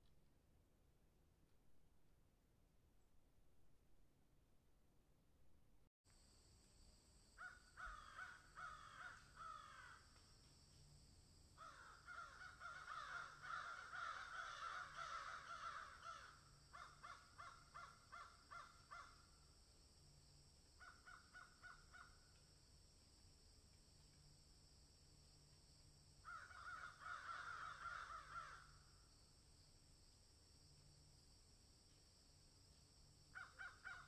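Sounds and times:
faint steady hiss: 6.1 - 33.5
harsh crow-like bird calls: 7.4 - 10.1, 11.6 - 19.3, 20.8 - 22.2, 26.2 - 28.9, 33.3 - 34.0.

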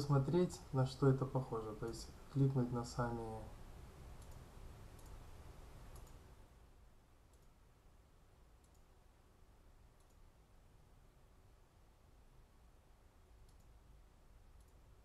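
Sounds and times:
faint computer mouse clicks: 4.2 - 5.2, 5.9 - 6.3, 7.3 - 7.6, 8.6 - 8.9, 10.0 - 10.2, 13.4 - 13.8, 14.6 - 14.8.

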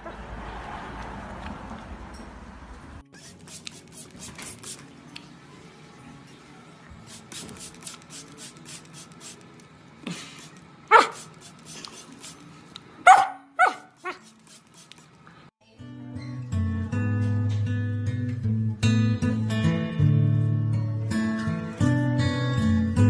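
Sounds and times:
puppy barking: 10.9 - 11.3, 13.0 - 14.2.

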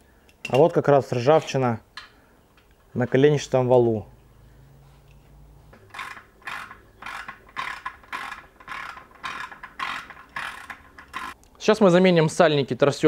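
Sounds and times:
short mechanical rasps: 5.8 - 11.4.

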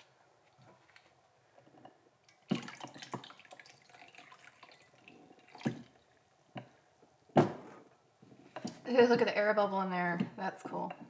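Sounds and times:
water trickling and dripping: 2.2 - 7.0.

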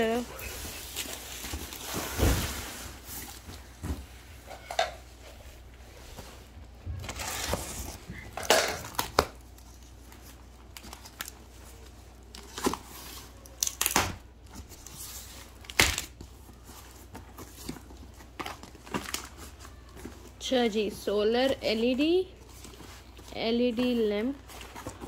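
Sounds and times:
packaging rustling and crinkling: 0.0 - 4.4, 6.2 - 25.0.

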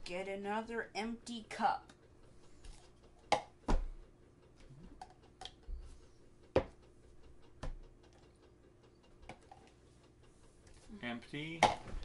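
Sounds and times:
cups set down on tabletop: 11.6 - 12.0.

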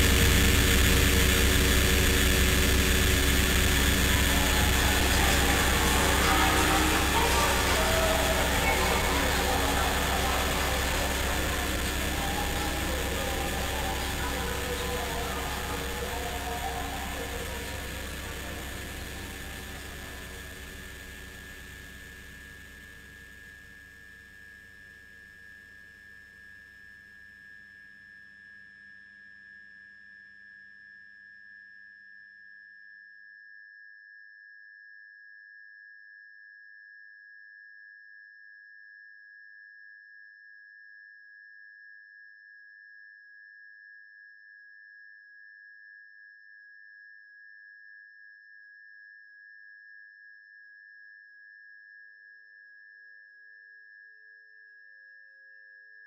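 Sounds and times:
background hiss and hum: 0.0 - 22.2.

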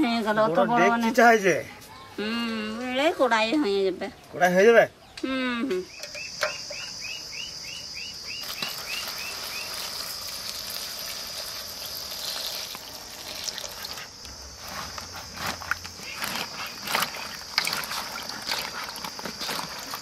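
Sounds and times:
water splashing into bowl: 8.4 - 14.1.

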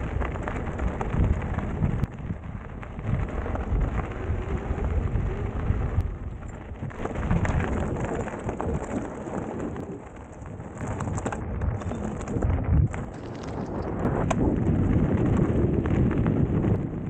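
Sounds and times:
tyres crunching over gravel: 0.0 - 16.6
wind rumble on microphone: 0.0 - 17.0
clicks and rattles: 6.0 - 14.4.

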